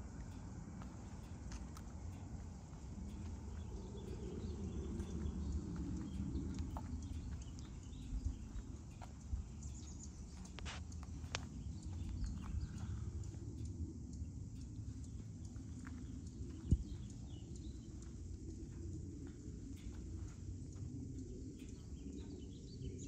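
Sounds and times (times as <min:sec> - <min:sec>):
footsteps on asphalt: 0:00.0 - 0:20.9
steady low rumble: 0:00.0 - 0:23.0.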